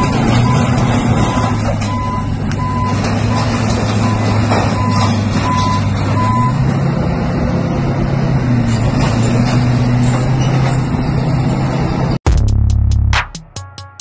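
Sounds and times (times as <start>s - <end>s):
reversing alarm beeps: 0.0s - 6.6s
blade scraping street surface: 0.0s - 12.2s
bulldozer diesel engine: 0.0s - 12.2s.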